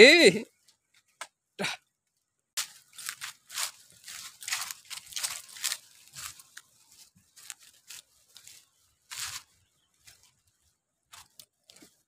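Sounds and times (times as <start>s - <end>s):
dry leaves crunching underfoot: 2.6s - 12.0s.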